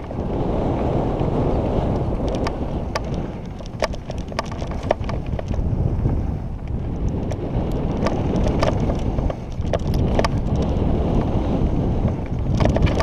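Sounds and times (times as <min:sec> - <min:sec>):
bike clicks and rattles: 0:00.0 - 0:13.0
bike tyres on gravel: 0:00.0 - 0:13.0
wind rumbling on microphone: 0:00.0 - 0:13.0.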